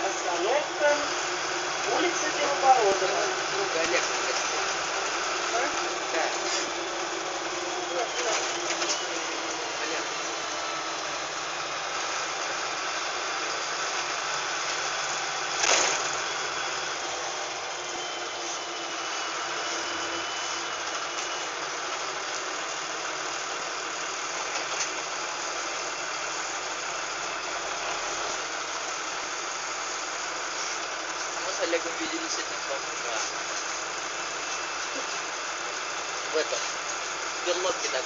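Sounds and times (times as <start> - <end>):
bus diesel engine running: 0.0 - 38.0.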